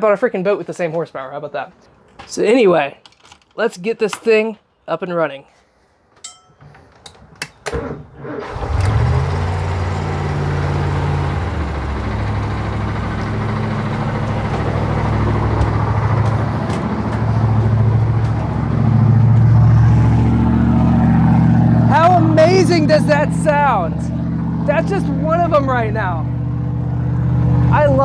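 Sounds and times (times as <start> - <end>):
boat engine idling: 8.5 - 28.0.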